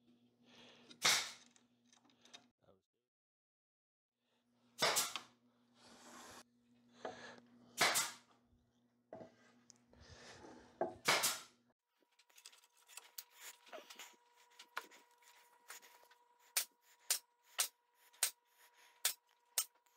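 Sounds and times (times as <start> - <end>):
low hum of saw: 12.7 - 19.9.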